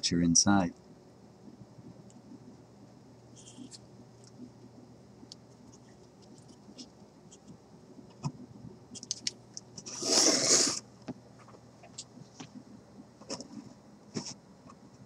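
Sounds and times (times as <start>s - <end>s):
loud scraping rustle: 9.8s - 10.8s.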